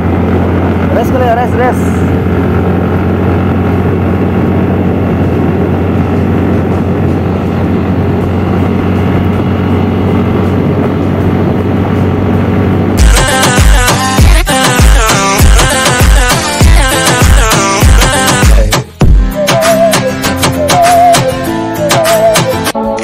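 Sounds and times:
motorbike engine drone: 0:00.0 - 0:22.8
road noise: 0:00.0 - 0:22.8
music: 0:13.0 - 0:23.0.

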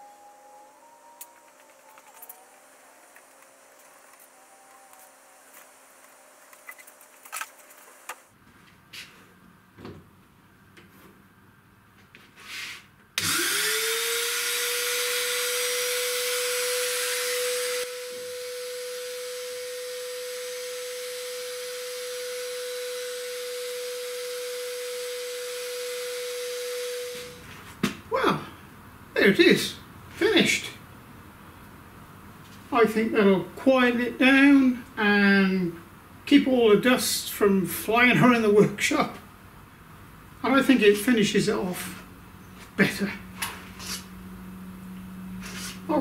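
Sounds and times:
router spindle whining: 0:00.0 - 0:08.3, 0:13.2 - 0:27.4.

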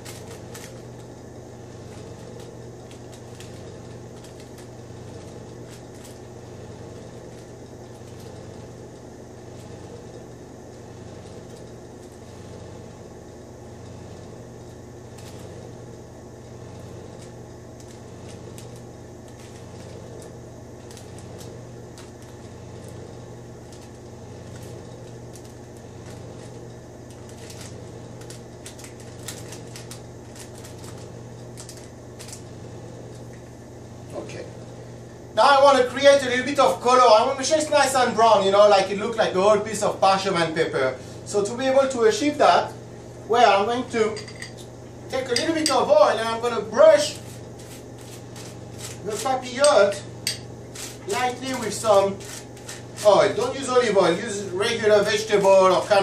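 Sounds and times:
parchment paper crinkling: 0:00.0 - 0:06.4, 0:07.0 - 0:09.8, 0:15.1 - 0:15.6, 0:17.1 - 0:32.5, 0:46.9 - 0:49.7, 0:50.6 - 0:56.0
low pulsing mechanical hum: 0:00.0 - 0:56.0.

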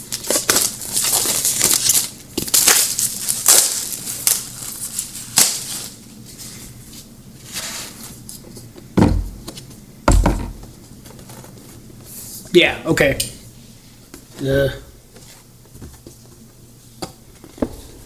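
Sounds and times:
board panels thumping open: 0:10.1 - 0:10.6.

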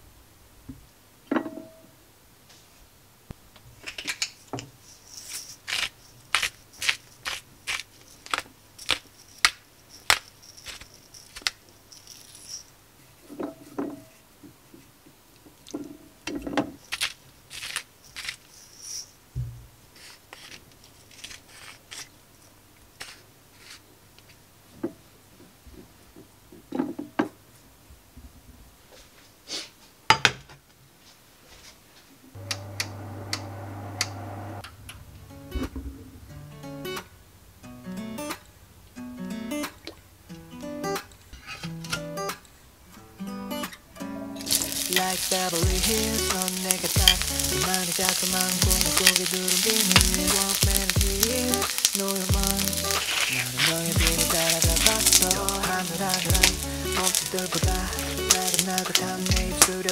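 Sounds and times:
pepper mill grinding: 0:03.9 - 0:12.7, 0:16.8 - 0:19.1, 0:44.4 - 0:59.9.

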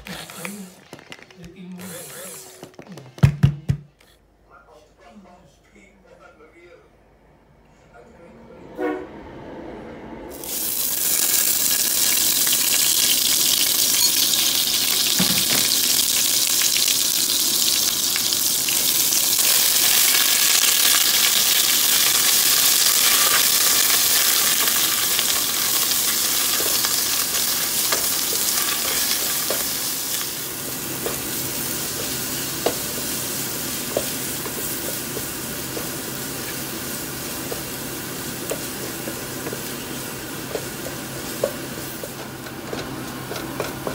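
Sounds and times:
paste sizzling in oil: 0:10.4 - 0:42.2.

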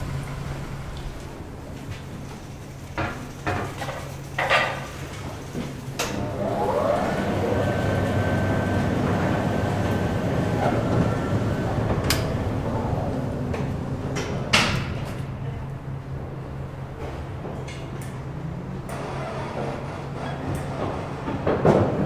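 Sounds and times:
elevator drive hum and whine: 0:00.0 - 0:22.0.

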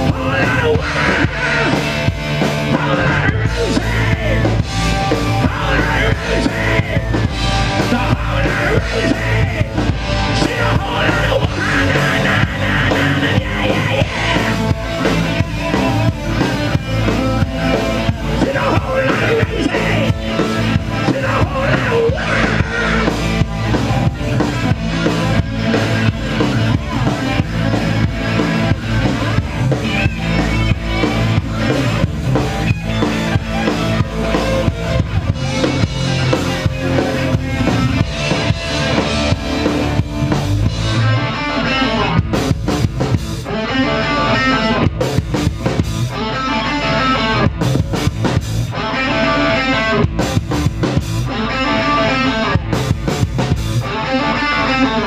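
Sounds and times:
person singing: 0:00.0 - 0:16.2, 0:17.0 - 0:24.0
drum kit beat: 0:00.0 - 0:41.1, 0:42.2 - 0:43.6, 0:44.8 - 0:46.2, 0:47.2 - 0:48.8, 0:50.0 - 0:51.4, 0:52.6 - 0:53.9
distorted electric guitars: 0:00.0 - 0:55.0.

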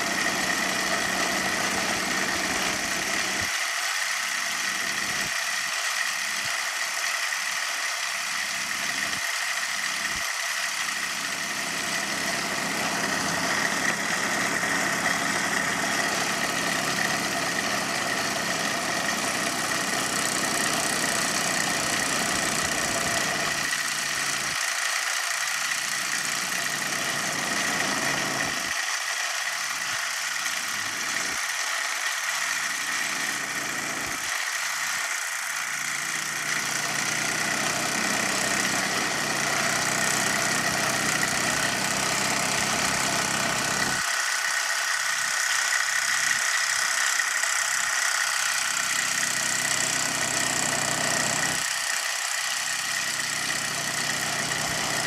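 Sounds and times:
model steam engines hissing: 0:00.0 - 0:55.0.

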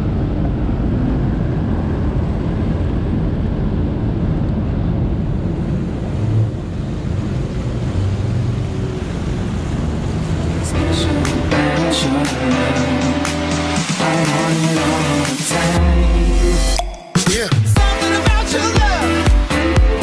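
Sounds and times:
wind buffeting microphone: 0:00.0 - 0:10.7.

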